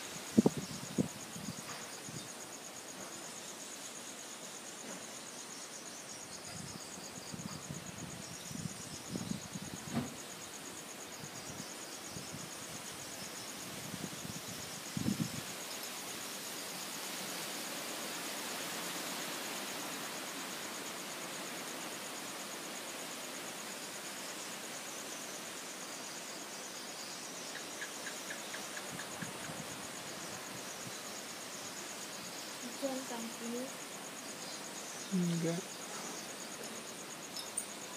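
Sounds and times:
insects trilling: 0:00.0 - 0:37.9
wind gusting through trees: 0:00.0 - 0:37.9
wind thumps on microphone: 0:00.3 - 0:02.3, 0:06.5 - 0:10.2, 0:13.8 - 0:15.4.

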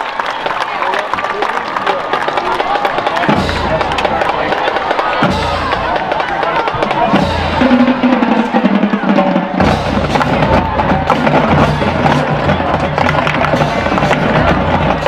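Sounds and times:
music with drums and heavy bass: 0:06.9 - 0:08.0, 0:09.4 - 0:15.0.

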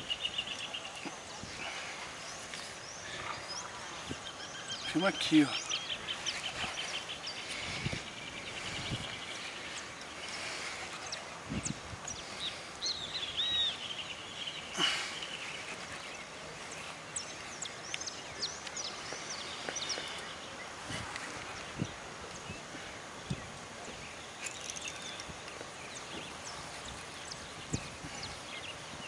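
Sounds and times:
small birds chirping: 0:00.0 - 0:29.0
steady outdoor hiss: 0:00.0 - 0:29.0.

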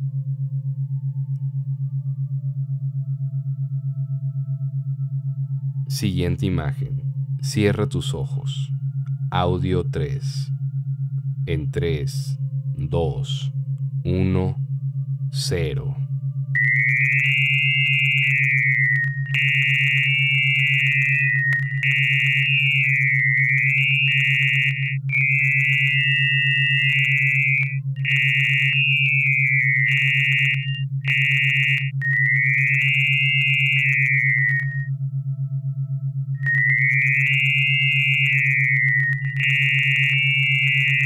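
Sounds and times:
steady low hum: 0:00.0 - 0:41.0
shifting high electronic tones: 0:16.6 - 0:34.9, 0:36.4 - 0:41.0.

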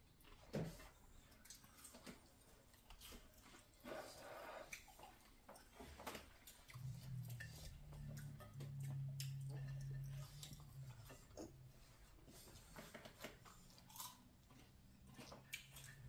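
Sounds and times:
chewing: 0:00.1 - 0:16.0
low steady hum: 0:06.5 - 0:16.0.

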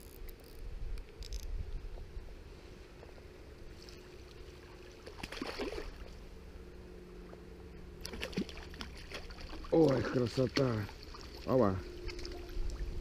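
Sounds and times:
flowing river water: 0:03.8 - 0:06.3, 0:08.0 - 0:13.0.

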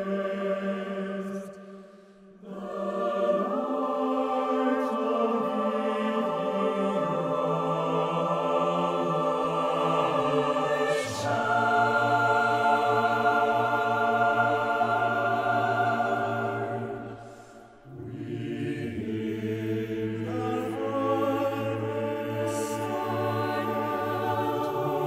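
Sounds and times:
mixed choir singing held chords: 0:00.0 - 0:25.0.

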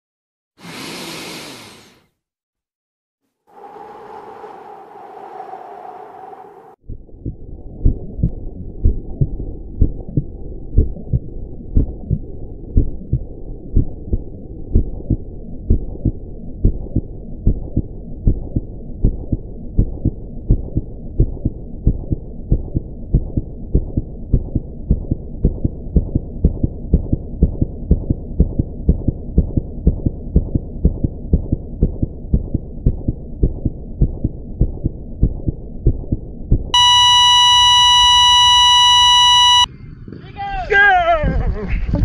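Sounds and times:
muffled heartbeat-like thumping: 0:06.9 - 0:36.7
steady electronic beep: 0:36.8 - 0:39.7.

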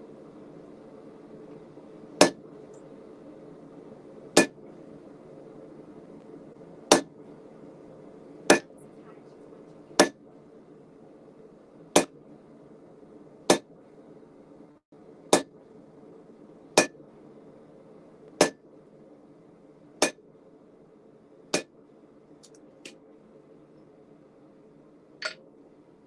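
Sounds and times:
hammer striking steel on anvil: 0:08.5 - 0:08.7, 0:16.8 - 0:17.0, 0:18.4 - 0:18.6.

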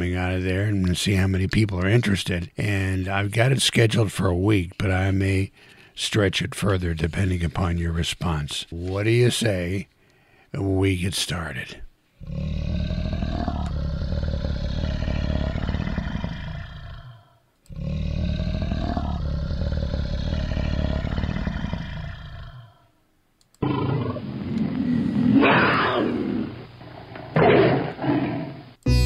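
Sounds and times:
tiger roaring: 0:12.2 - 0:22.8, 0:23.6 - 0:28.7.

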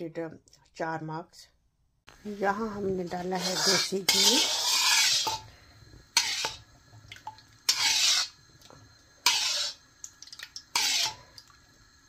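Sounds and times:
spoon scraping ghee: 0:02.9 - 0:05.4, 0:06.2 - 0:06.6, 0:07.7 - 0:08.4, 0:09.2 - 0:09.8, 0:10.7 - 0:11.3.

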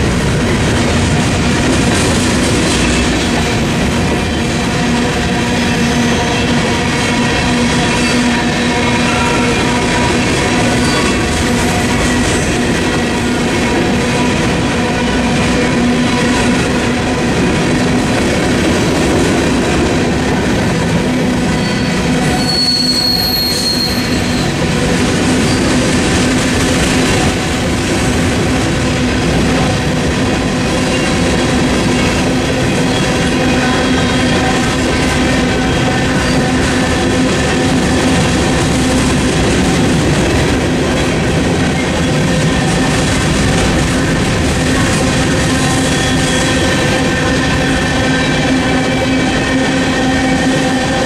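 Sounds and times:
freight train rolling past: 0:00.0 - 0:51.0
high wheel squeal: 0:21.5 - 0:24.6, 0:45.7 - 0:46.9.

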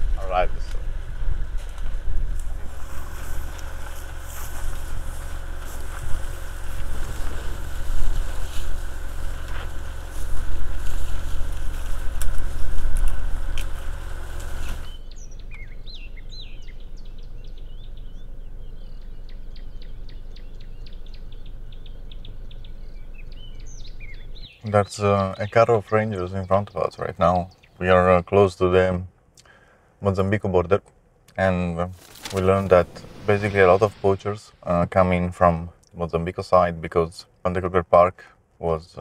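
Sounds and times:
wind noise: 0:00.0 - 0:15.0
vehicle engine idling: 0:00.0 - 0:24.6
birds chirping: 0:00.0 - 0:30.0, 0:31.3 - 0:36.0.

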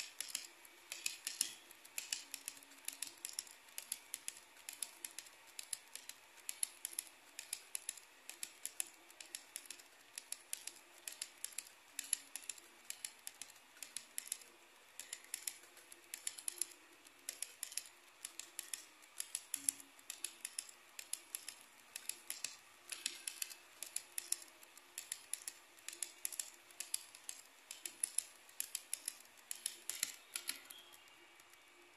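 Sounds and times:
model train wheels clicking on track: 0:00.0 - 0:31.9.

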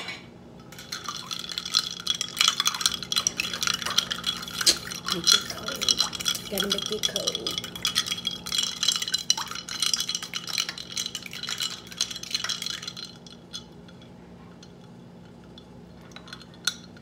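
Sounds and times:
knife and ice clinking in mug: 0:00.7 - 0:14.0.

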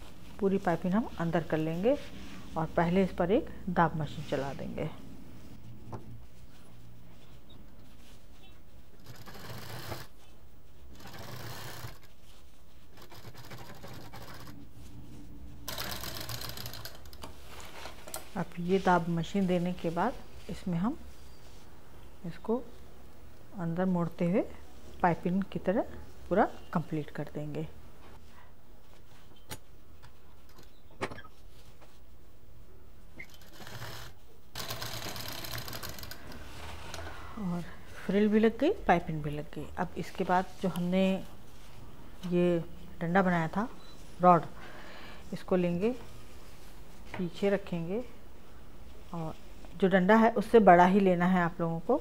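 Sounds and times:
sewing machine stitching: 0:09.0 - 0:10.2, 0:10.9 - 0:12.1, 0:12.9 - 0:14.6, 0:15.7 - 0:17.2, 0:33.2 - 0:36.5.

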